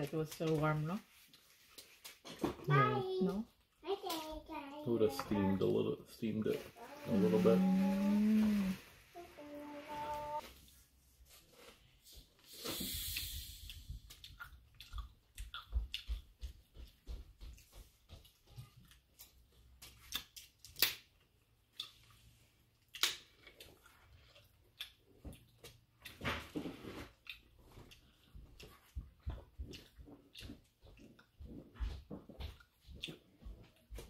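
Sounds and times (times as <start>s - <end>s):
brief hiss: 12.4s - 14.0s
wet chewing and lip smacks: 13.0s - 26.2s, 27.1s - 31.8s, 32.5s - 34.0s.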